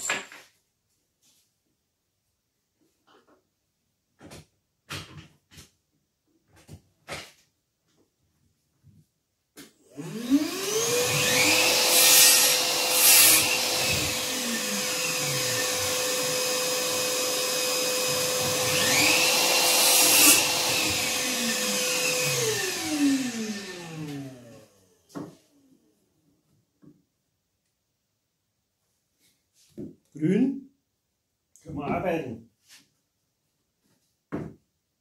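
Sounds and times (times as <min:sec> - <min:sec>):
power tool motor whine: 0:09.9 - 0:24.9.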